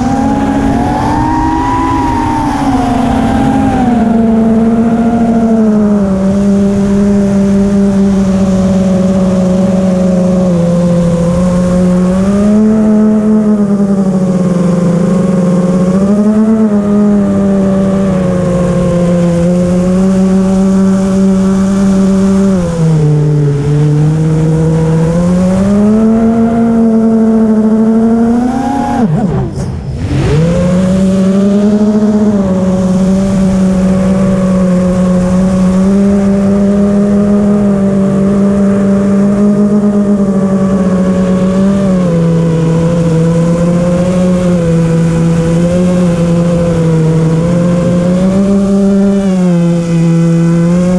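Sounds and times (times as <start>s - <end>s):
drone motors whining: 0.0s - 50.9s.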